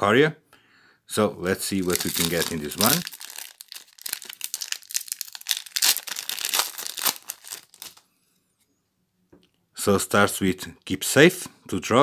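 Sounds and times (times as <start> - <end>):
foil wrapper crinkling: 1.7 - 8.0.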